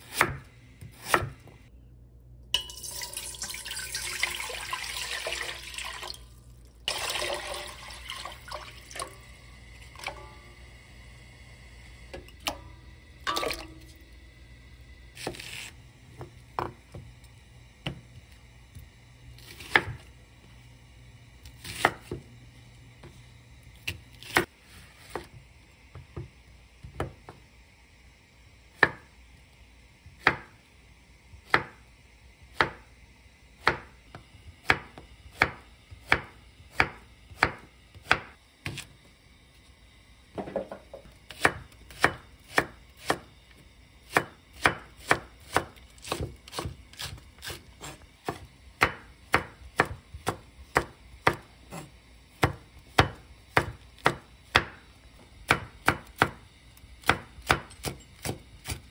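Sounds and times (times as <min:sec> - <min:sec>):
knife chopping on wooden board: 0:00.0 - 0:01.4, 0:32.6 - 0:32.8, 0:33.6 - 0:33.9, 0:34.6 - 0:38.8, 0:40.4 - 0:43.3, 0:44.1 - 0:54.8, 0:55.5 - 0:56.4, 0:57.0 - 0:58.9.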